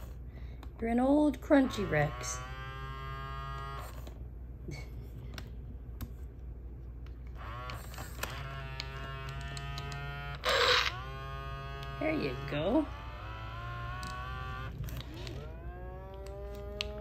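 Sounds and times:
toy motor buzzing hum: 1.4s - 4.2s, 7.3s - 17.0s.

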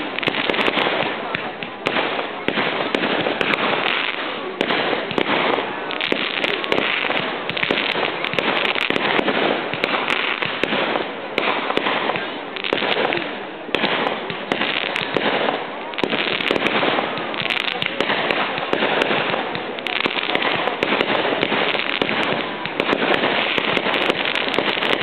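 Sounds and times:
fireworks crackling: 0.0s - 25.0s.

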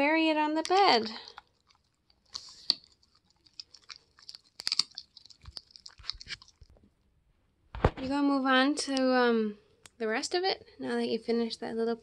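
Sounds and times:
dog chewing with crisp crunches: 0.6s - 6.9s.

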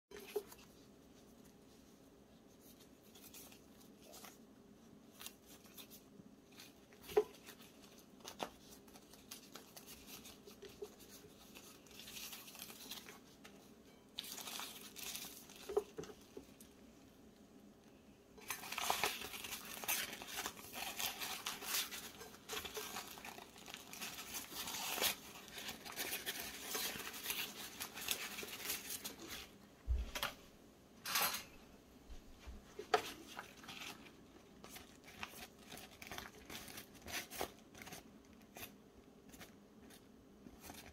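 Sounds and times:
leaves rustling and tearing: 2.6s - 4.4s, 5.1s - 13.6s, 14.2s - 16.6s, 18.4s - 29.5s, 32.9s - 38.0s.

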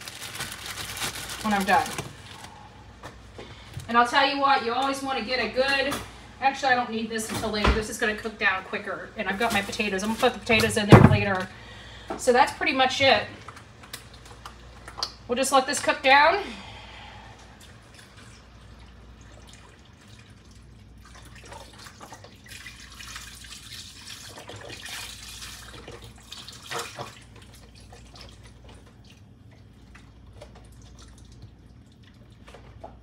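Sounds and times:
liquid running and dripping: 13.4s - 15.3s, 17.3s - 33.0s.

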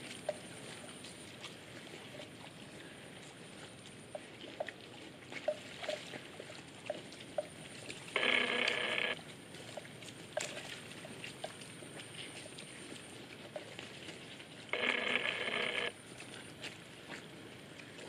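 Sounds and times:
faint high insect hum: 7.4s - 10.0s, 10.6s - 17.8s
loud buzzy call: 8.2s - 9.2s.

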